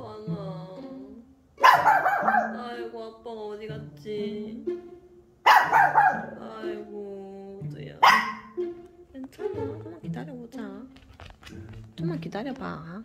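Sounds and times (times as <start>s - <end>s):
light background music: 0.0s - 13.0s
puppy barking sharply: 1.6s - 2.6s, 5.4s - 6.4s, 8.0s - 8.6s.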